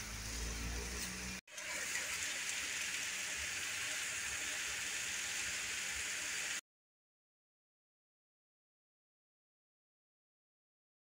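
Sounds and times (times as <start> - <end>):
food sizzling in a wok: 0.0 - 6.6.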